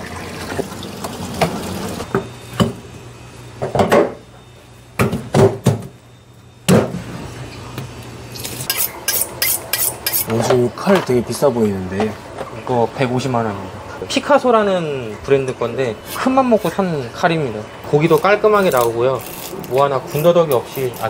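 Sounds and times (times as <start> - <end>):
metal fish scaler scraping: 8.4 - 10.4.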